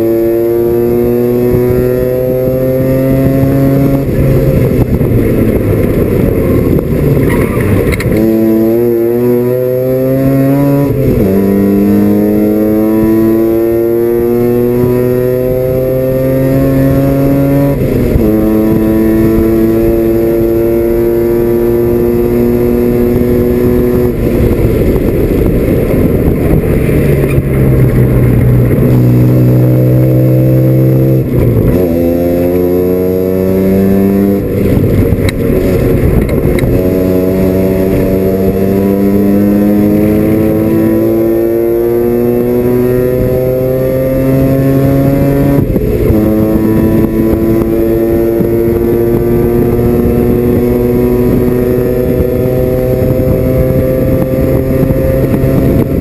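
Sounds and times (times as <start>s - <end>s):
rotary engine revving through gears: 35.6s - 56.0s.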